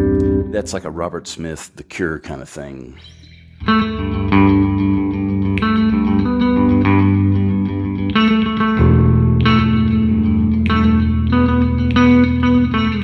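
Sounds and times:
deep bass note: 0:00.0 - 0:01.1
electric bass guitar picked notes: 0:00.0 - 0:01.2, 0:03.0 - 0:13.0.

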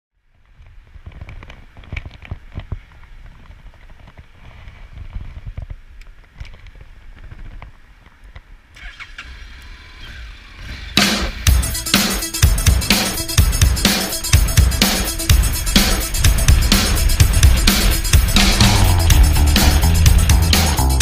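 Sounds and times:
camera bumps and rubbing: 0:01.0 - 0:08.2.

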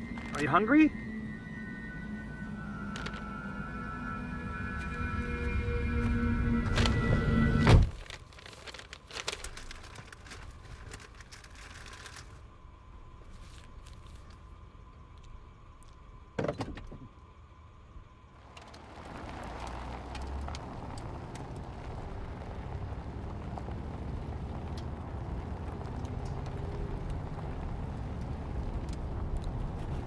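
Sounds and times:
car driving heard from inside: 0:18.4 - 0:30.0.

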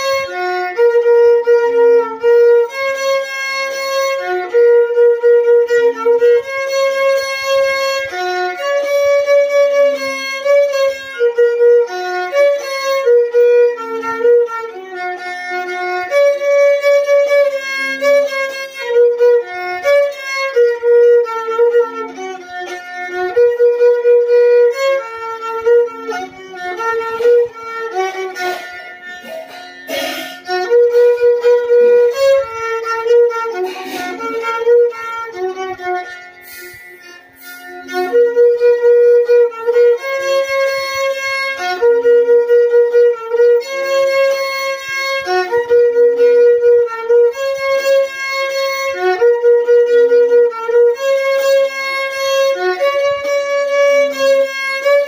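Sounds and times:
solo violin slow melody: 0:00.0 - 0:55.0.

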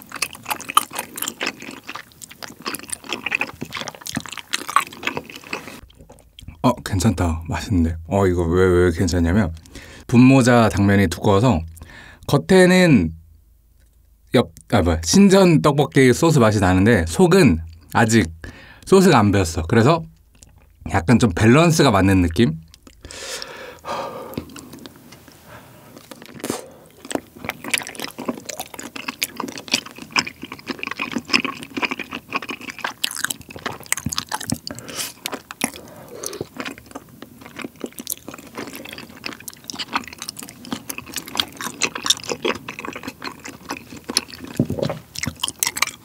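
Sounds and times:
wet slurping and chewing: 0:00.0 - 0:06.6, 0:22.6 - 0:46.0.

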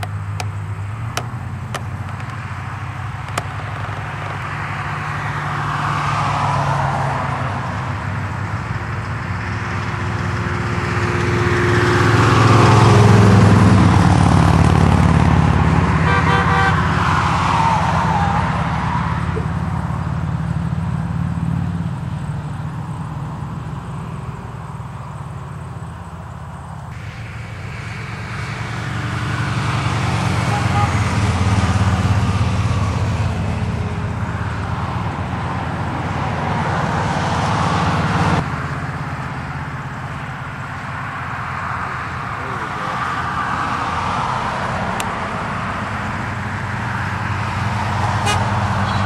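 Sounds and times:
vehicles driving past: 0:00.0 - 0:49.0
vehicle horn short toots: 0:16.0 - 0:16.8, 0:30.4 - 0:31.1, 0:48.2 - 0:49.0.

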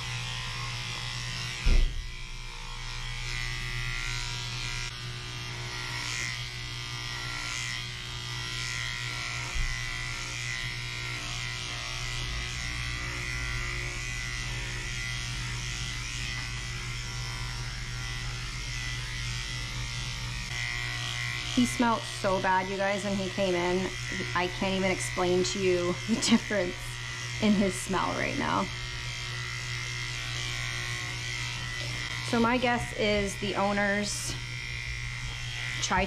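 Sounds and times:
dog clipper buzzing: 0:00.0 - 0:36.0
loud thump: 0:01.6 - 0:02.1.

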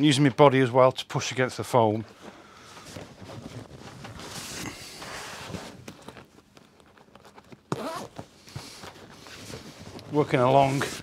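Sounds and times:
fabric and foam rustling: 0:01.9 - 0:11.0
zip being worked: 0:07.7 - 0:08.2.

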